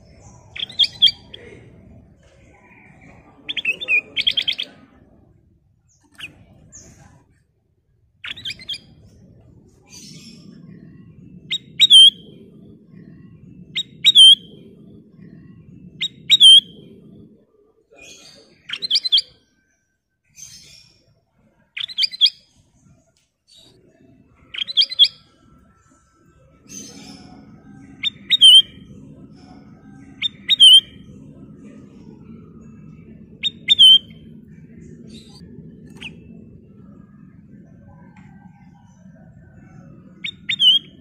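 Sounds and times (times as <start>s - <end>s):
bird calling: 0.0s - 1.8s, 2.6s - 5.0s, 9.8s - 17.0s, 26.7s - 31.0s, 32.6s - 37.0s, 38.1s - 41.0s
faint low rumble: 0.0s - 41.0s.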